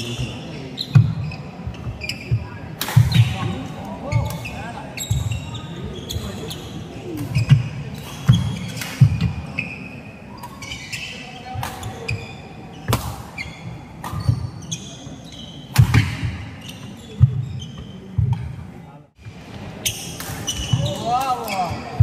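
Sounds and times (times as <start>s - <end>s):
shoes squeaking: 0.0s - 18.6s, 19.3s - 22.0s
rackets smacking shuttlecock: 2.8s - 3.4s.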